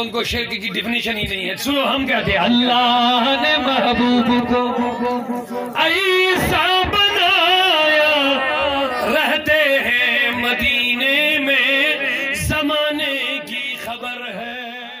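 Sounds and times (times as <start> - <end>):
man chanting devotional verse: 0.0 - 15.0.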